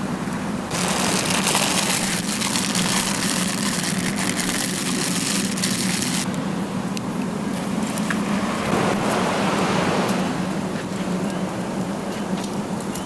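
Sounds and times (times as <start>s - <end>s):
plastic packaging crinkling: 0.7s - 6.3s.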